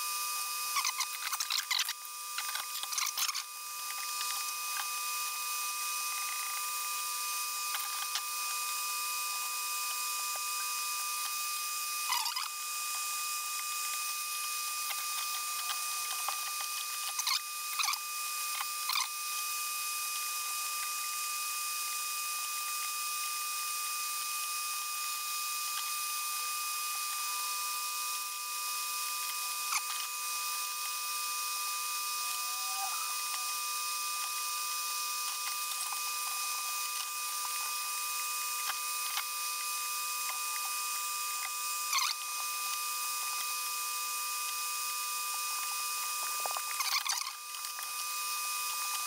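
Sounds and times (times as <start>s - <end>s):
steady tonal whine: 0.0s - 19.4s, 29.3s - 43.5s
hand tools squeaking and clicking: 0.8s - 4.9s, 12.1s - 12.6s, 14.9s - 18.0s, 41.9s - 42.2s, 46.5s - 47.9s.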